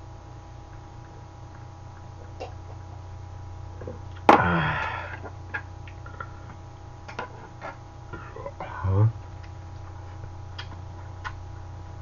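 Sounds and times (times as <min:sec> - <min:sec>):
low steady hum: 0:00.0 - 0:12.0
man exhaling loudly: 0:04.3 - 0:05.3.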